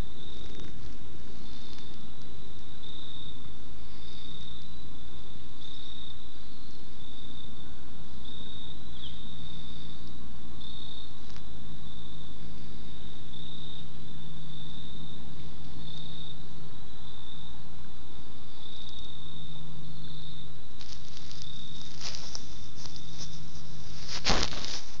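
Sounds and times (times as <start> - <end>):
crackling rustles: 0.0 - 4.2, 11.1 - 11.5, 20.7 - 25.0
insects chirring: 0.0 - 25.0.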